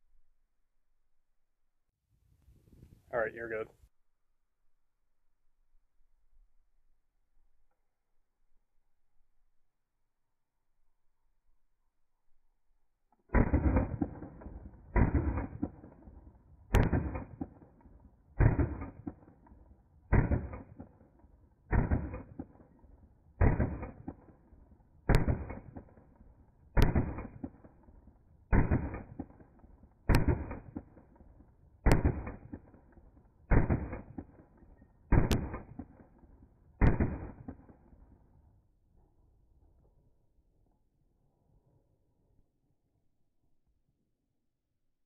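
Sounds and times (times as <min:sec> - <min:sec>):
slowed pistol shots booming: 0:13.3 - 0:38.2.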